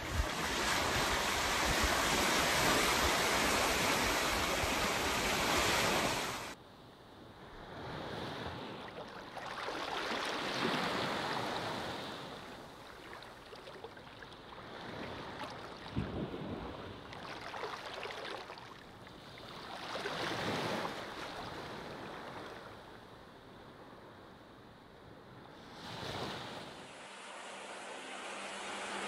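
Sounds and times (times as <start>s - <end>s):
sea waves washing onto beach: 0.0s - 6.6s, 7.9s - 22.7s.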